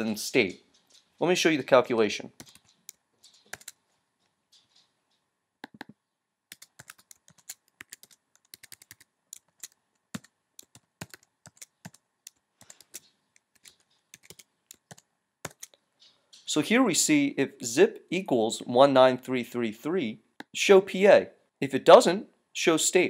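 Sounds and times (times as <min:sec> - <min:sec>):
keyboard typing clicks: 0:02.4 - 0:03.8, 0:05.6 - 0:15.8.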